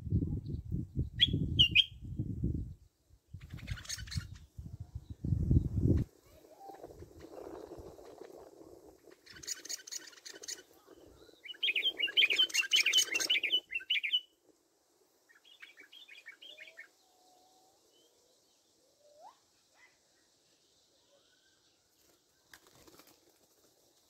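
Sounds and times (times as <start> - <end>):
songbird twittering: 0.5 - 2.2, 9.2 - 14.3, 15.3 - 20.3.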